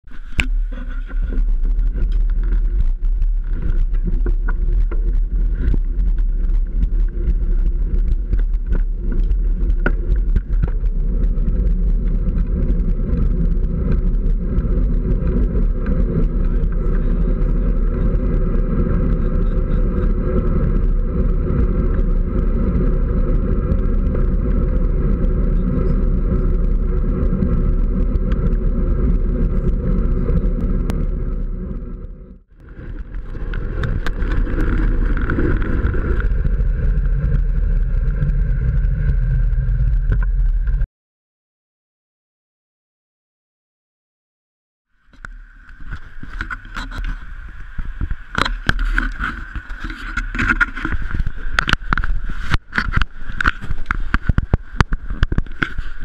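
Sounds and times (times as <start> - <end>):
road rumble: 0.0 - 40.9, 44.9 - 56.0
wind rushing: 0.1 - 40.9
bicycle clicks and rattles: 32.7 - 37.0, 48.0 - 56.0.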